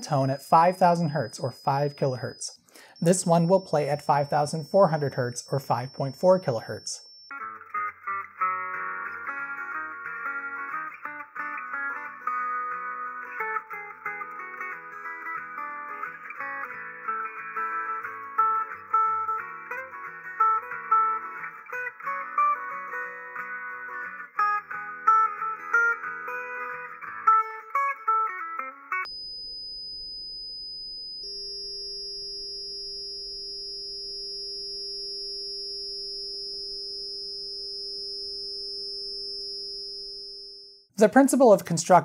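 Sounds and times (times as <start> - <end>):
high-pitched test tone: 0.0 - 7.4
background guitar music: 7.3 - 29.1.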